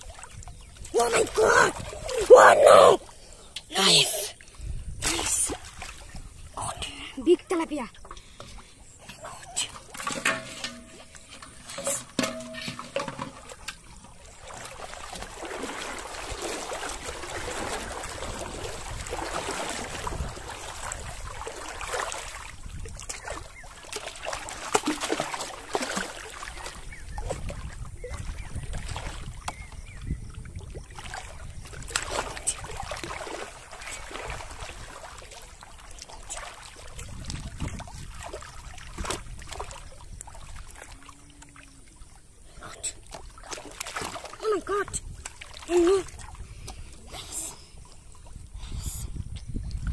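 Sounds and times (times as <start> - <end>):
water sloshing from wading: 0.0 - 49.9.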